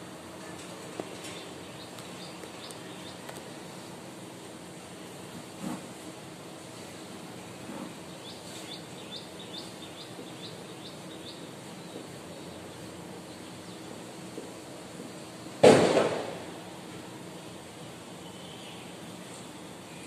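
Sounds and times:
steady background hiss: 0.0 - 20.0
sudden loud bang: 15.6 - 16.5.

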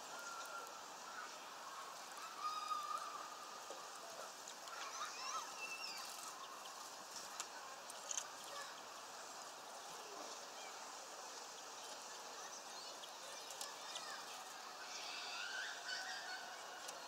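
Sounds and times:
background hiss: 0.0 - 17.0.

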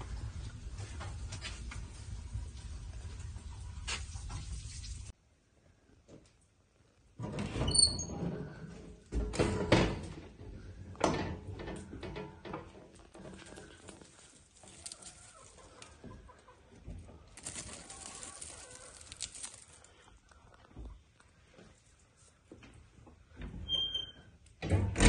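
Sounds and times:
rustling: 12.6 - 22.8
chickens clucking: 14.6 - 19.4.

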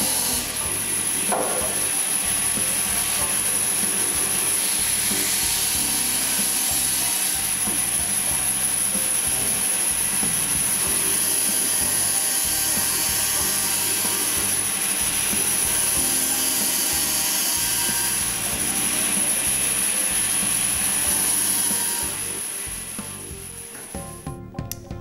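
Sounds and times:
band saw cutting wood: 0.0 - 23.9.

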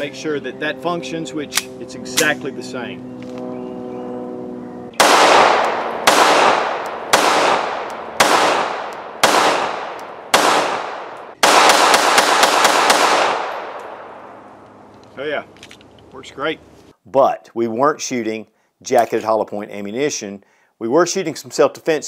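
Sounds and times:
pistol shots with echo: 5.0 - 14.2.

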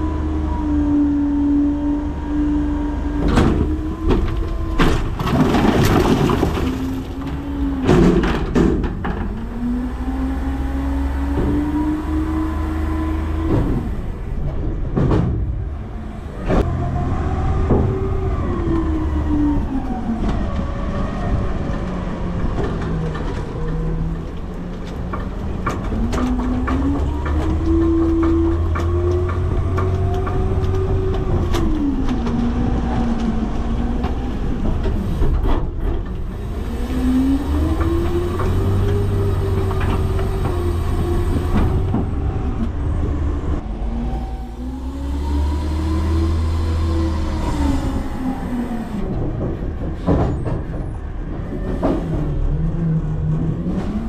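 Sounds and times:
garbage truck diesel engine: 0.0 - 54.0
metal knocks and rattles: 14.5 - 15.6.

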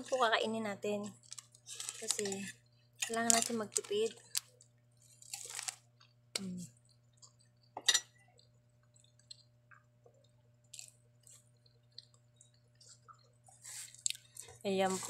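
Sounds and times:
plastic wrapper crinkling: 1.0 - 5.8.

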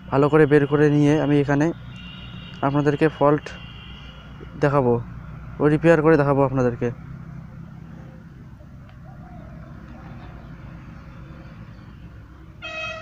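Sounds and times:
low traffic rumble: 0.0 - 13.0.

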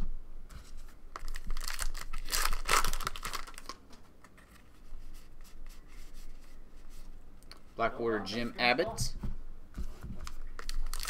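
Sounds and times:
foil wrapper tearing and crinkling: 1.2 - 3.8, 10.2 - 11.0.

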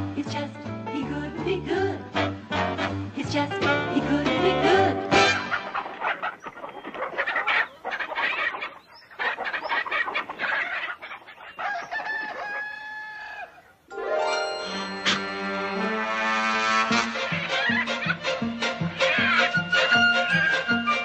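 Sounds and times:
music: 0.0 - 5.6, 13.9 - 21.0
chickens squawking and clucking: 4.7 - 15.4, 17.2 - 21.0
rooster crowing: 11.6 - 13.7.

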